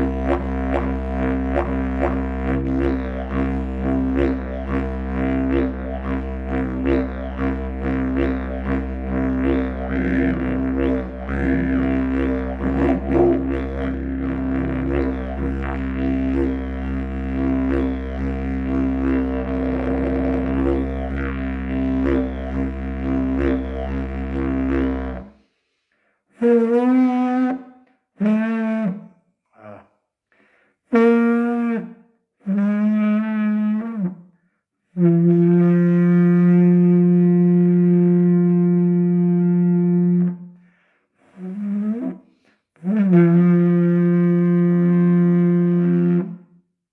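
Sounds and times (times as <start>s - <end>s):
didgeridoo drone: 0.0s - 25.3s.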